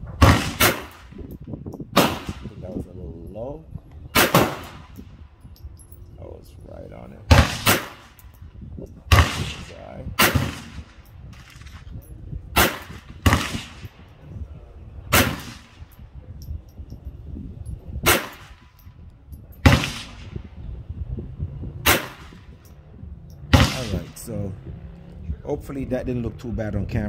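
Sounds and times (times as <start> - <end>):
pistol shots with echo: 0.2 - 1.1, 2.0 - 2.5, 4.1 - 4.9, 7.3 - 8.2, 9.1 - 11.0, 12.5 - 14.0, 15.1 - 15.9, 18.0 - 18.7, 19.6 - 20.4, 21.8 - 22.5, 23.5 - 24.2.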